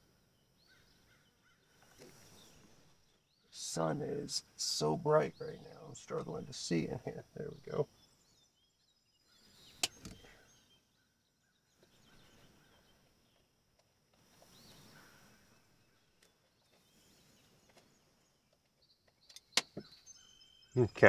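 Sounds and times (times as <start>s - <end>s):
faint bird chirps: 0.0s - 13.6s, 14.2s - 21.0s
sharp click: 9.8s - 10.2s.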